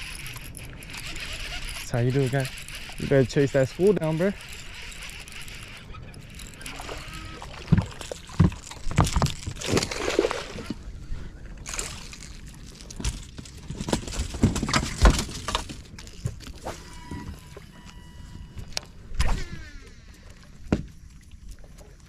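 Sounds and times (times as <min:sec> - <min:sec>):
knocks and thumps against boat: 0:07.4 - 0:09.9, 0:13.0 - 0:16.4, 0:20.6 - 0:21.0.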